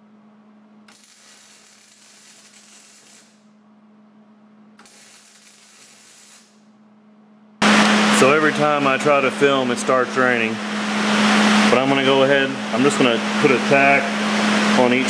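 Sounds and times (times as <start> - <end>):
steady low hum: 0.0 - 15.0
welding arc hissing and crackling: 0.9 - 3.5, 4.8 - 6.7.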